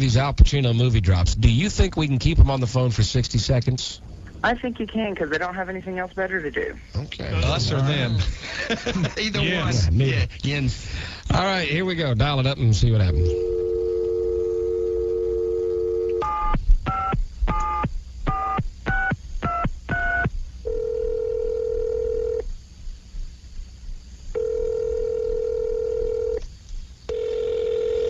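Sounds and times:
telephone ringing tone: 0:13.1 - 0:18.6, 0:19.5 - 0:22.4, 0:24.4 - 0:26.4, 0:27.1 - 0:28.0
telephone dial tone: 0:13.3 - 0:16.5, 0:20.7 - 0:22.4, 0:24.4 - 0:26.4, 0:27.1 - 0:28.0.

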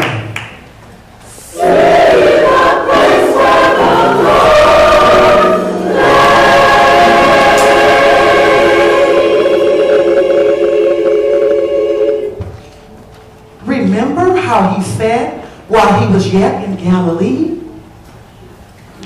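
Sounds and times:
gospel choir singing: 0:01.3 - 0:12.8.

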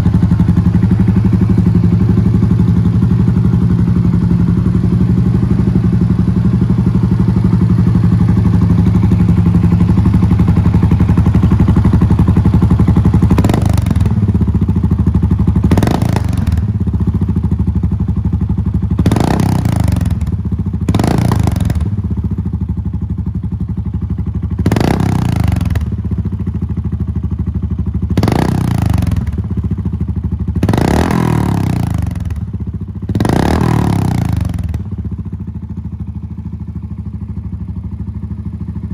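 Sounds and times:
motorcycle engine idling and revving: 0:00.0 - 0:38.9.

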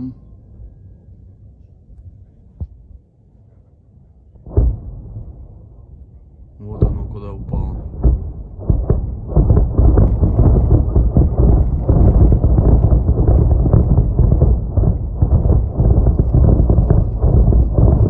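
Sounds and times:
distant shelling booms: 0:04.4 - 0:18.0.

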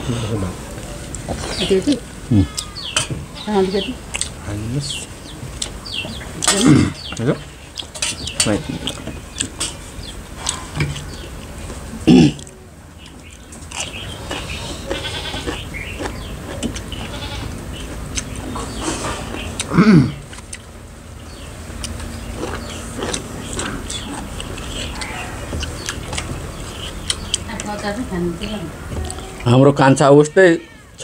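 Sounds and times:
people chewing: 0:00.0 - 0:29.8
goat bleating: 0:02.3 - 0:03.9, 0:08.4 - 0:09.0, 0:14.8 - 0:15.6, 0:17.0 - 0:17.6.

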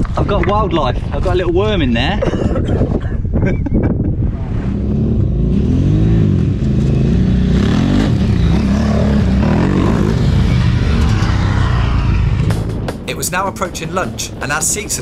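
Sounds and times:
motorcycle engine revving: 0:04.4 - 0:13.1.

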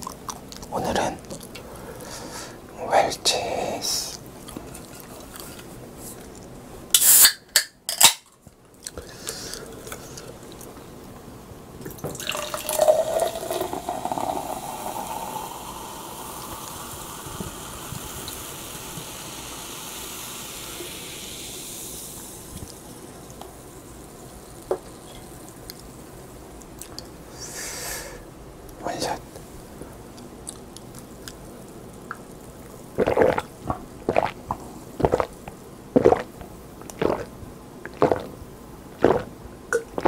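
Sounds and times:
soda can cracking open: 0:07.0 - 0:08.4
soda pouring into glass mug: 0:11.9 - 0:25.9
soda fizzing: 0:11.9 - 0:26.9, 0:31.0 - 0:38.4, 0:39.0 - 0:40.0.

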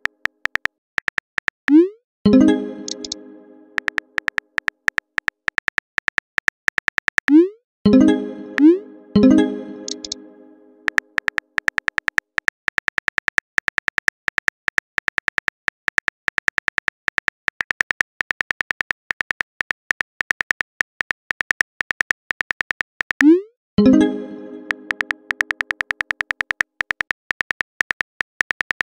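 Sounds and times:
phone keyboard typing clicks: 0:00.0 - 0:01.8, 0:02.8 - 0:03.2, 0:03.8 - 0:07.4, 0:09.8 - 0:10.2, 0:10.9 - 0:23.3, 0:24.6 - 0:28.9.

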